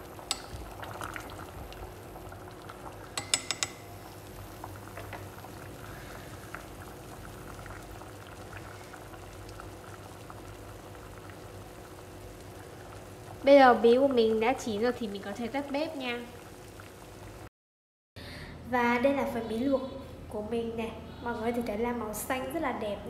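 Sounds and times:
water boiling and bubbling: 0.0 - 17.5
chopsticks clicking on pot: 0.2 - 0.8, 3.1 - 3.9.

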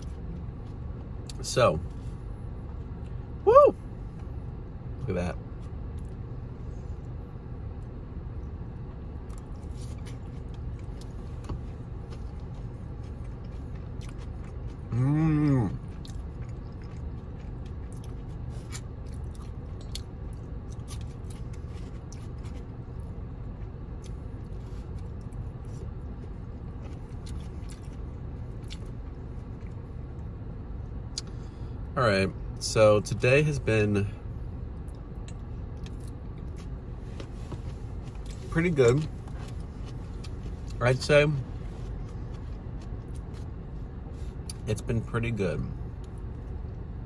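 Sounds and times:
steady low hum: 0.0 - 47.0
chewing and biting food: 7.8 - 29.9, 41.6 - 43.7
person humming mmm: 14.9 - 15.8.

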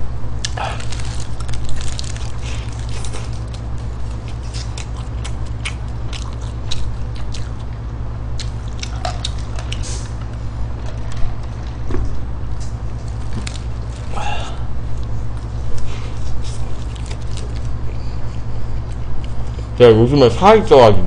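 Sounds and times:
steady low hum: 0.0 - 21.0
chewing with wet mouth smacks: 0.4 - 11.8, 15.0 - 19.7.

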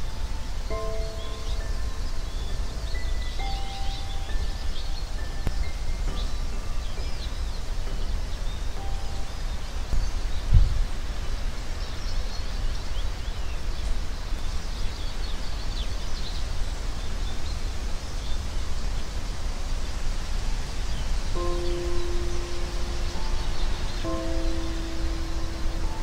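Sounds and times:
small birds chirping: 0.0 - 26.0
low thump: 10.5 - 10.8.

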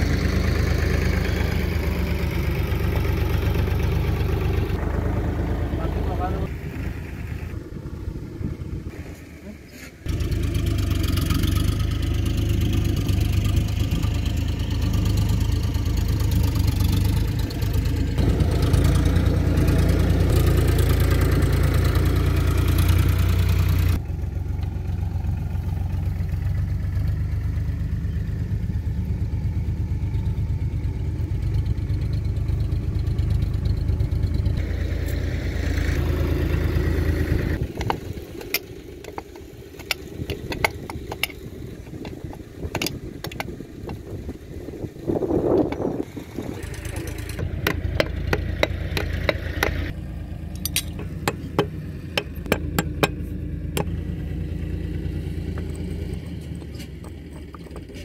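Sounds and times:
engine idling: 0.0 - 58.0
sharp metallic clicks: 50.5 - 53.2.

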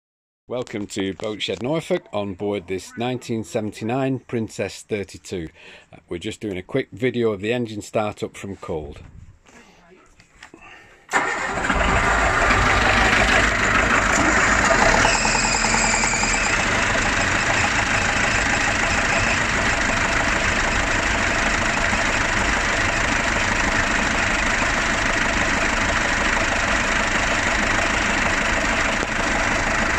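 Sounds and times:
boat engine starting and idling: 11.1 - 29.9.

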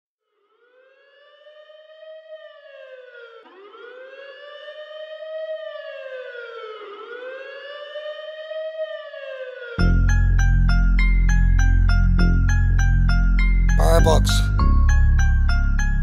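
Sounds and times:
wailing siren: 0.4 - 11.6.

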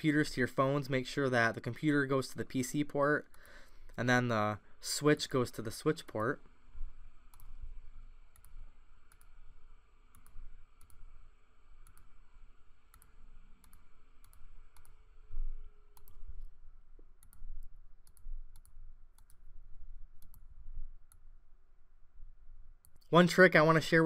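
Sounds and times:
faint hum: 0.0 - 24.0
computer mouse clicking: 3.3 - 3.6, 7.3 - 7.6, 8.3 - 9.4, 10.1 - 11.2, 11.8 - 12.2, 12.9 - 15.0, 15.9 - 16.5, 17.2 - 19.4, 20.2 - 21.2.

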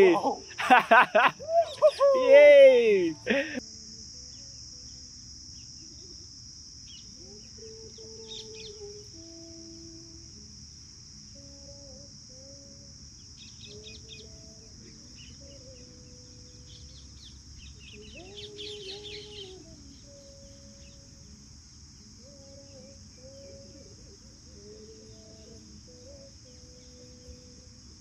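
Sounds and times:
birds chirping: 0.0 - 3.6, 6.8 - 9.0, 13.2 - 21.2
high insect drone: 0.0 - 28.0.

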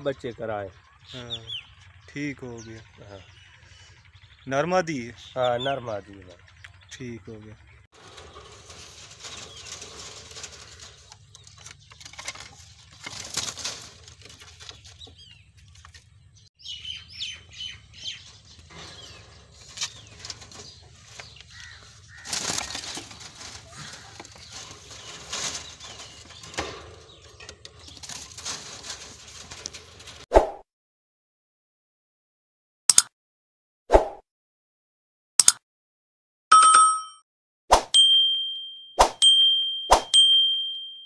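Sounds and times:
parakeets chirping: 0.2 - 8.4, 14.8 - 28.2
wings flapping and rustling: 8.0 - 16.4, 17.3 - 30.2.

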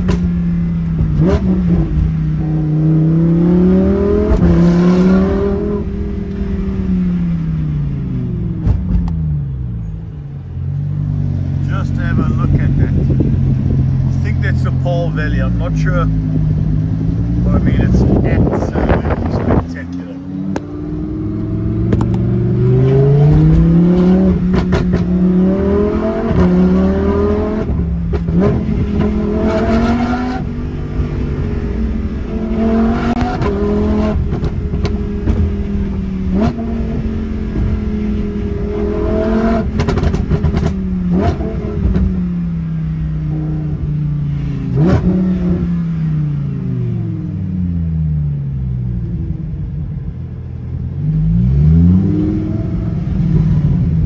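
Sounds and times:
exhaust pops and crackles: 0.0 - 1.2, 21.9 - 22.3, 39.6 - 42.1
car engine accelerating: 0.0 - 54.0.

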